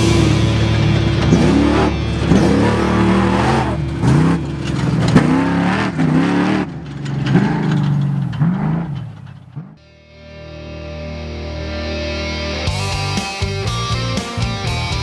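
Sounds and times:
truck engine revving hard: 0:00.0 - 0:09.8.

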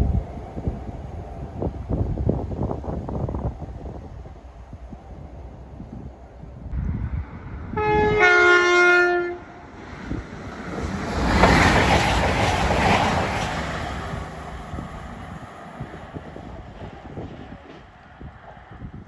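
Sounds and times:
train passing by: 0:00.0 - 0:19.0
train two-tone horn: 0:07.7 - 0:09.6.

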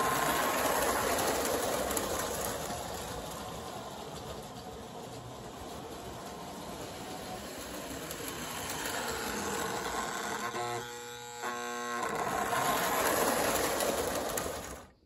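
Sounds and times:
toy train motor and wheels whirring: 0:00.0 - 0:15.0
toy train horn: 0:09.5 - 0:12.7.

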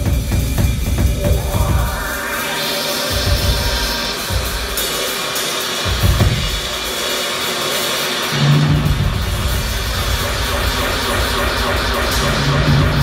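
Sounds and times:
drum kit with cymbals: 0:00.0 - 0:13.0
keyboards and synthesizer: 0:00.7 - 0:13.0
held low bass note: 0:01.0 - 0:04.7.

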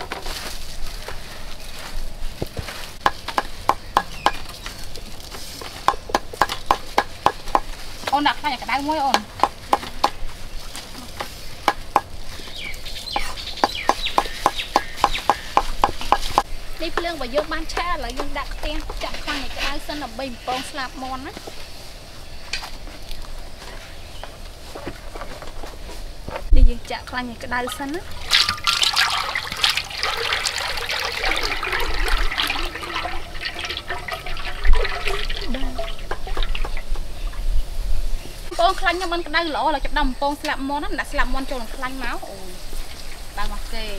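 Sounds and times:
cleaver chopping on wooden block: 0:03.0 - 0:04.5, 0:05.8 - 0:07.7, 0:13.2 - 0:16.5
oil pouring into a metal wok: 0:28.2 - 0:36.0.

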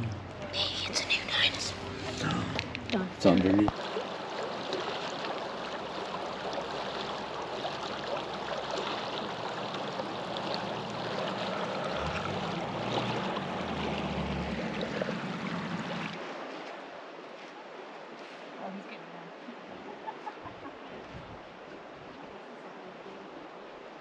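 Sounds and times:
river rushing: 0:00.0 - 0:19.7.

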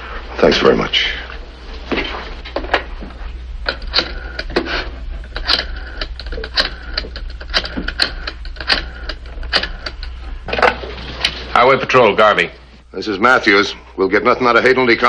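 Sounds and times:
steady low hum: 0:00.0 - 0:15.0
rotary telephone dial clicking: 0:03.7 - 0:04.7, 0:05.3 - 0:10.2.

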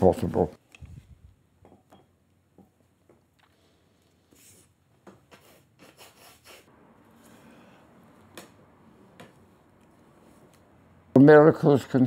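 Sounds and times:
brush rubbing on canvas: 0:05.3 - 0:06.7.

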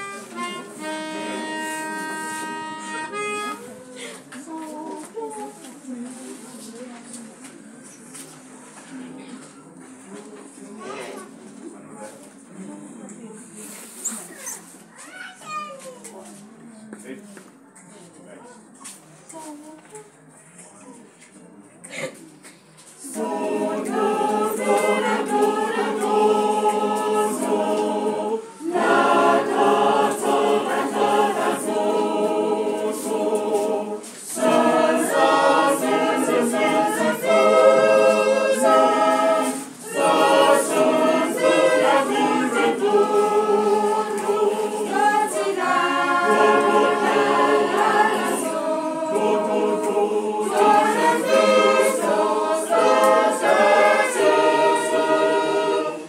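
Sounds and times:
choir singing unaccompanied: 0:00.0 - 0:05.6, 0:23.0 - 0:56.0.

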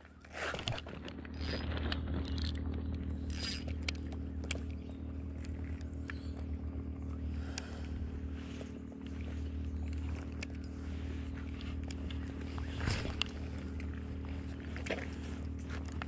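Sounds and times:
steady low rumble: 0:00.0 - 0:16.0
fishing reel clicks and rattles: 0:00.6 - 0:04.7.

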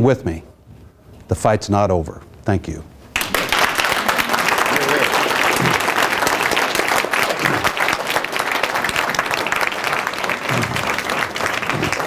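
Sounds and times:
audience applauding: 0:03.2 - 0:12.0.

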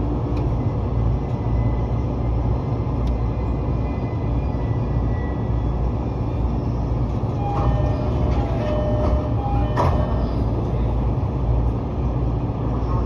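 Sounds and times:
electric train hum: 0:00.0 - 0:13.0
train doors closing thud: 0:07.4 - 0:10.5.

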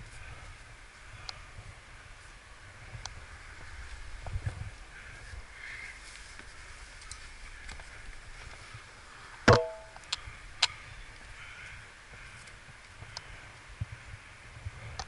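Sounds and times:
climbing hardware clinking on rock: 0:09.5 - 0:10.1.

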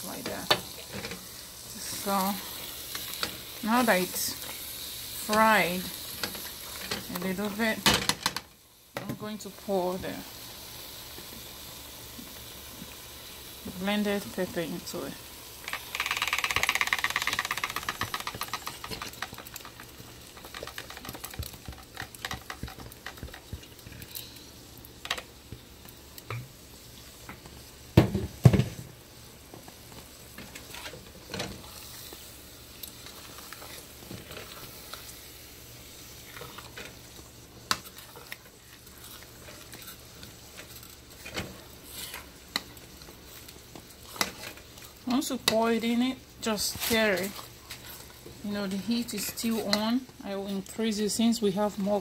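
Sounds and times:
seeds sizzling in oil: 0:00.0 - 0:52.0
spoon stirring and scraping: 0:16.8 - 0:24.1, 0:36.2 - 0:37.0, 0:37.6 - 0:45.5.

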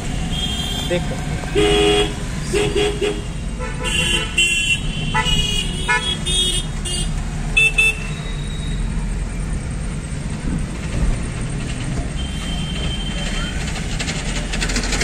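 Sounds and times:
car engine rumble and road noise: 0:00.0 - 0:15.0
vehicle horns honking: 0:00.2 - 0:08.8.

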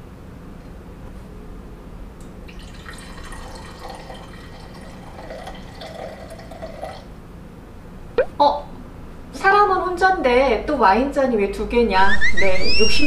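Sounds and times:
wine pouring into a glass: 0:02.5 - 0:07.1.

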